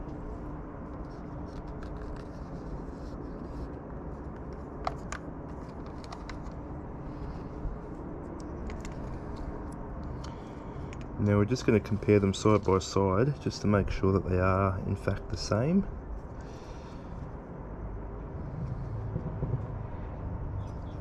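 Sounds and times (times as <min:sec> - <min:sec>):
low background rumble: 0:00.0 - 0:21.0
light clicks of small parts: 0:08.3 - 0:11.2.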